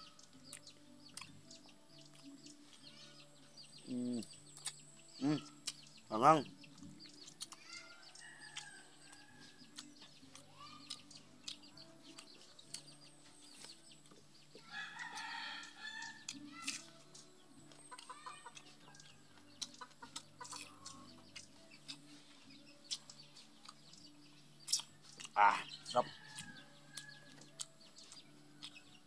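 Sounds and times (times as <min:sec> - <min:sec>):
chickens clucking: 0:00.0 - 0:29.0
eating by hand: 0:00.0 - 0:29.0
rooster crowing: 0:14.7 - 0:16.2.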